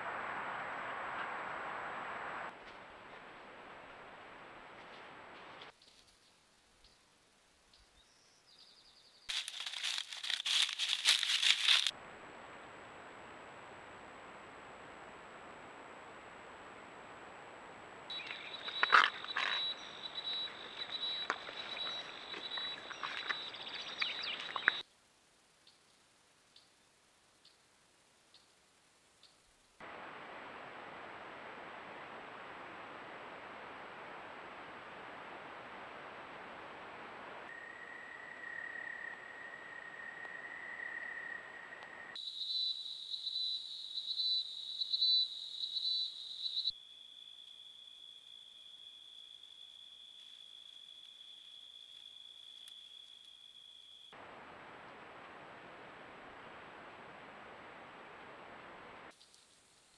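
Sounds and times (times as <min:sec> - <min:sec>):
squelching and splashing in mud: 0:09.3 - 0:11.9, 0:18.1 - 0:24.8
night insects trilling: 0:18.1 - 0:24.8, 0:37.5 - 0:54.3.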